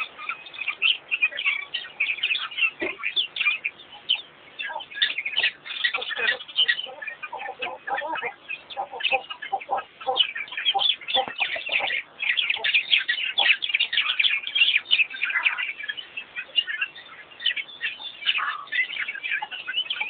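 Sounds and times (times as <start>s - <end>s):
bird clucking notes: 0.0s - 20.0s
birds chirping and twittering: 0.0s - 20.0s.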